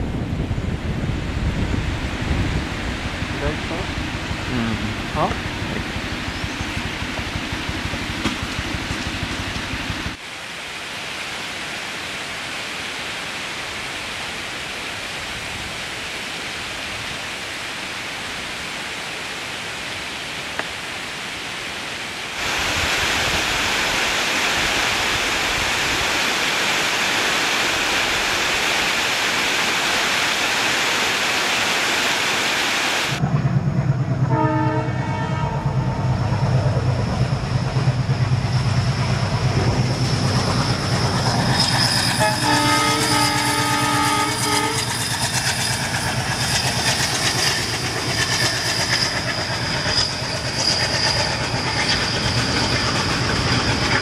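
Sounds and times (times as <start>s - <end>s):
train rumbling: 0.0s - 10.2s, 33.0s - 54.0s
waterfalls rushing: 10.2s - 33.2s.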